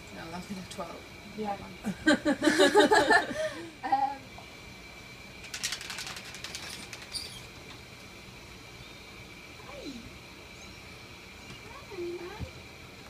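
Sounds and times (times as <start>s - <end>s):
faint high-pitched whine: 0.0s - 13.0s
small clicks and rustling: 5.4s - 7.8s.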